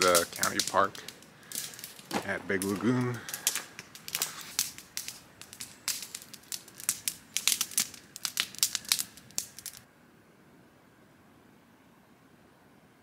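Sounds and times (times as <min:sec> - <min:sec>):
campfire crackling and popping: 0:00.0 - 0:09.9.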